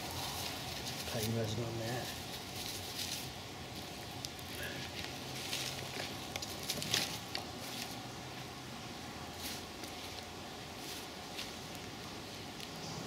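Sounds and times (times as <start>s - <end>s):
campfire crackling and popping: 3.2s - 7.6s.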